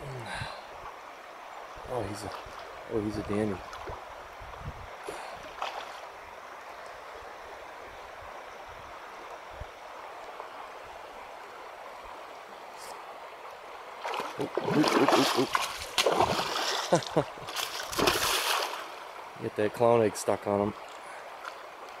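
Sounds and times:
river flowing over gravel: 0:00.6 - 0:22.0
fish splashing: 0:14.0 - 0:19.0.

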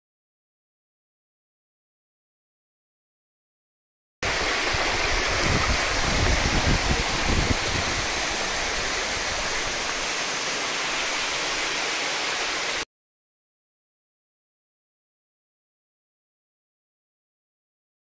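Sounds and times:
waterfall rushing over rocks: 0:04.2 - 0:12.9.

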